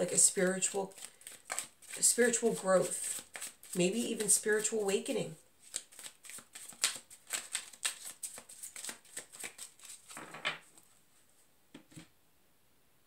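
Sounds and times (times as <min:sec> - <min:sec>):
cards shuffling: 0:00.1 - 0:04.8, 0:05.6 - 0:10.8.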